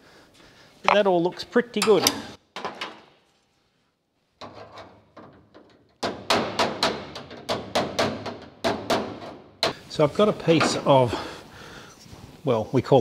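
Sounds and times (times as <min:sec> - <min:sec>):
tool tapping on metal roof: 0:04.4 - 0:09.8.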